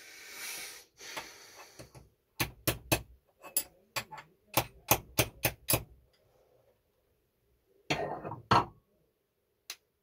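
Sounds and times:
metal parts tapping: 3.3 - 5.8.

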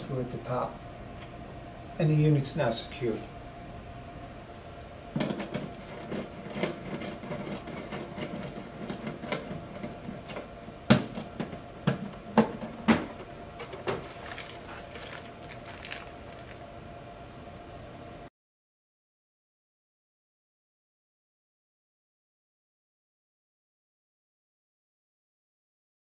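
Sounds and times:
faint steady hum: 0.0 - 18.3
plastic bag rustling: 13.6 - 16.7.

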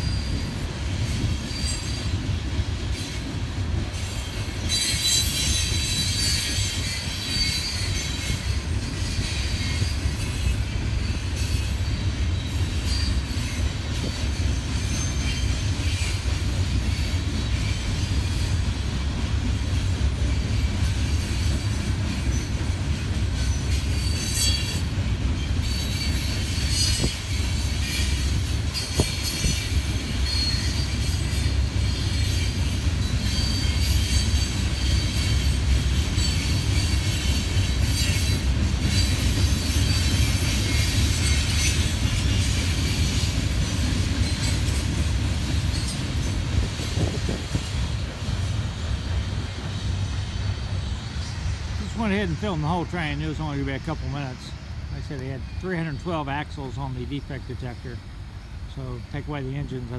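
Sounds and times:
train rumbling past: 0.0 - 59.9
metallic squealing: 4.0 - 18.6, 23.4 - 54.6.

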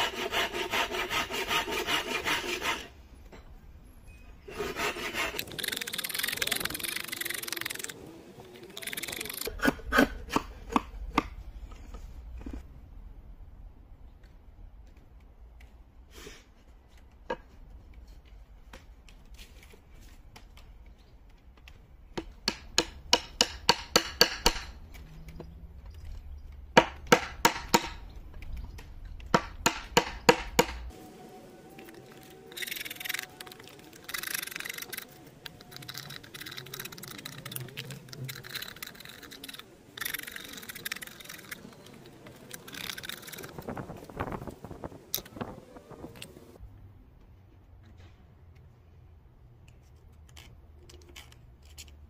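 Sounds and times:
drawknife shaving wood: 0.0 - 2.9, 4.5 - 8.0
mallet striking chisel into wood: 22.2 - 24.7, 26.8 - 28.0, 29.3 - 30.9.

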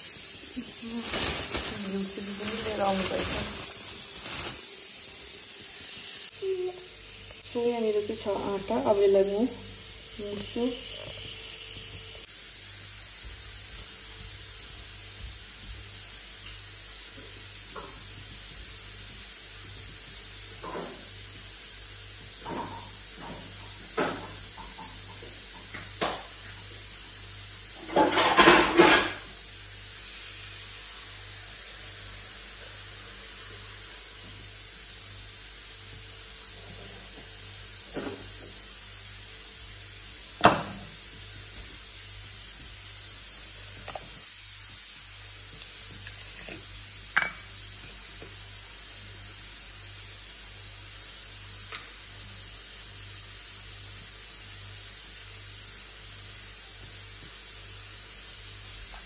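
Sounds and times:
steady hiss: 0.0 - 59.0
dishes and utensils clinking: 27.8 - 29.3.

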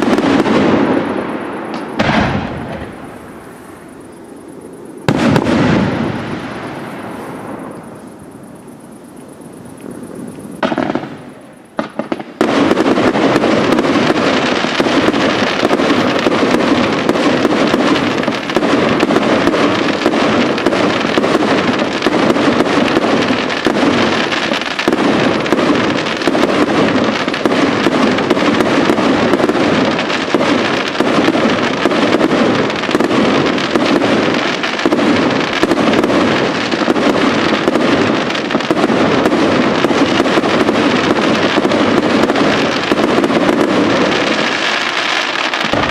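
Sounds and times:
fireworks crackling: 0.0 - 45.9.

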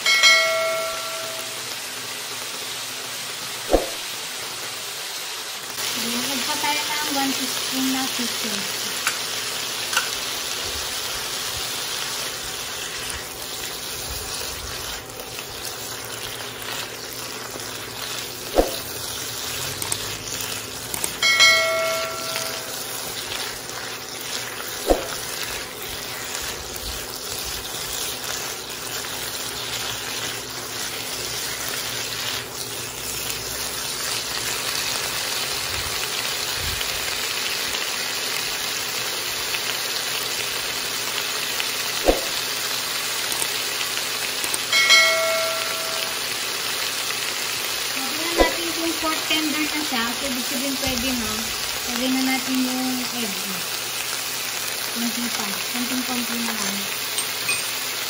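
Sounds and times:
brief chime: 0.0 - 1.6, 21.2 - 22.8, 44.8 - 46.2
vegetables sizzling in oil: 0.0 - 58.0.

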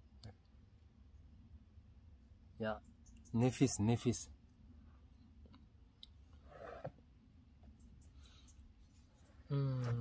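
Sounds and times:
soft rustle: 7.6 - 10.0.

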